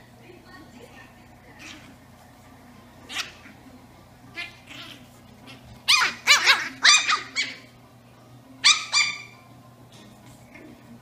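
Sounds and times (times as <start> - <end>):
puppies barking and yipping: 4.3 - 7.8, 8.6 - 9.4.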